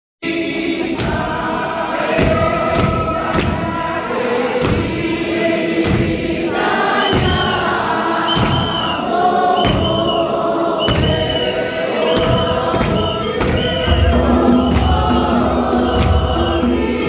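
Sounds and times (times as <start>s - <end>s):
congregation singing a hymn: 0.2s - 17.0s
sharp thumps keeping beat: 12.0s - 17.0s.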